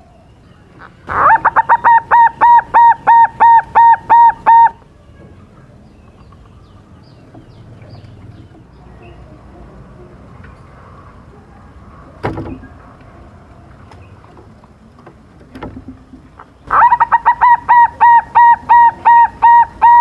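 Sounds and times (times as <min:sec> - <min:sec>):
dove cooing: 0:00.8 - 0:04.8, 0:16.7 - 0:20.0.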